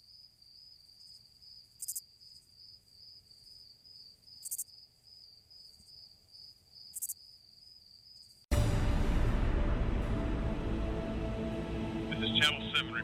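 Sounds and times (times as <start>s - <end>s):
crickets chirping: 0.0s - 8.4s.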